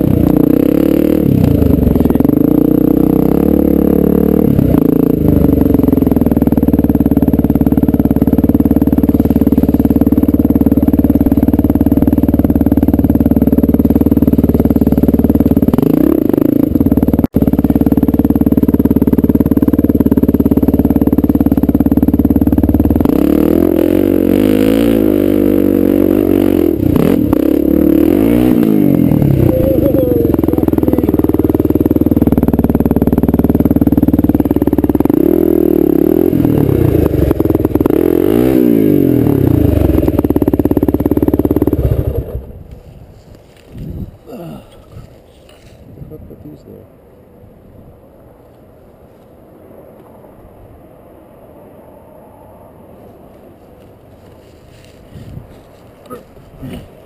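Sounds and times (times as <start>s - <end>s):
dirt bike engine revving: 0.0s - 42.6s.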